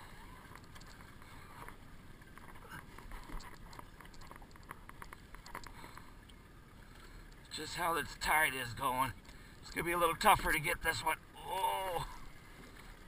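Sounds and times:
boat low steady rumble: 0:00.0 - 0:13.0
light ticks and taps: 0:00.5 - 0:06.4.

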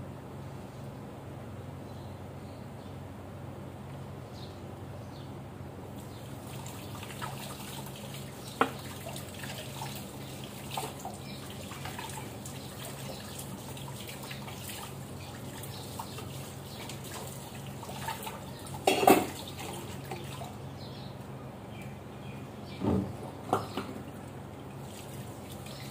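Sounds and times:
kitchen tap running: 0:06.4 - 0:20.6
metal utensils clinking: 0:18.9 - 0:19.3
steel dishes clattering: 0:18.9 - 0:19.4.

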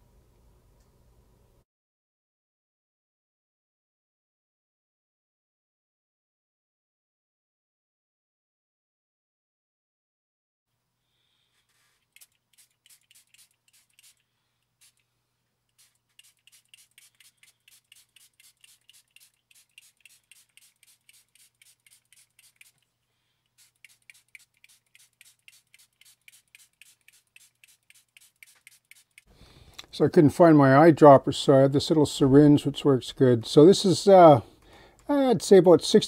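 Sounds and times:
spray bottle hisses: 0:11.6 - 0:15.1, 0:15.7 - 0:22.9, 0:23.5 - 0:29.3.

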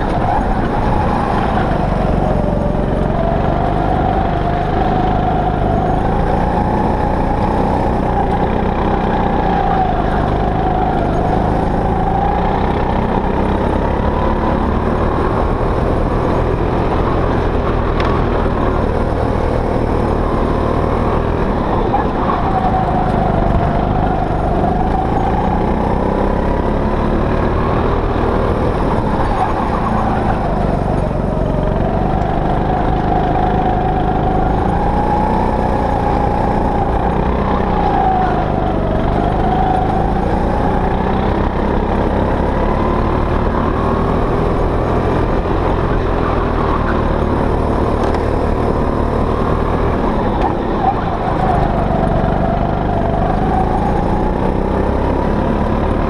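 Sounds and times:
go-kart engine running hard: 0:00.0 - 0:56.0.

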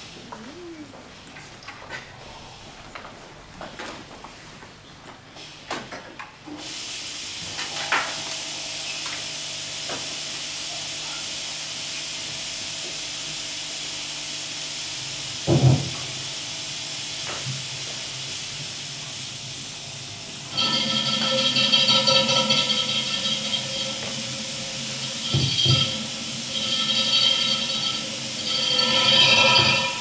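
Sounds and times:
steady hiss: 0:06.6 - 0:30.0.

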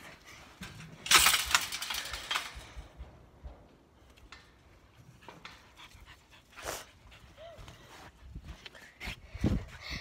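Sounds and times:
wire cage trap rattling: 0:00.9 - 0:02.9.

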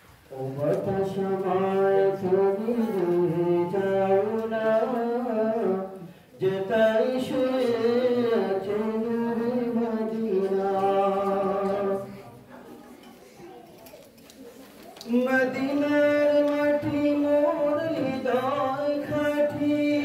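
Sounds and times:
man singing unaccompanied: 0:00.3 - 0:12.2, 0:15.1 - 0:20.0.

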